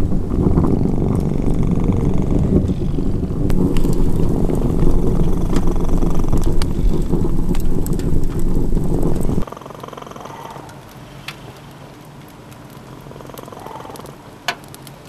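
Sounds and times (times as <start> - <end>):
cat purring: 0.0 - 10.7.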